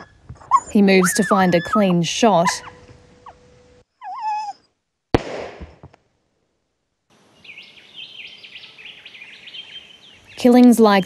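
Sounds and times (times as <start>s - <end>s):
dog whimpering: 0.0s - 3.4s, 4.0s - 4.7s
birds chirping: 0.0s - 4.7s, 7.2s - 11.0s
gunshot: 5.1s - 6.0s.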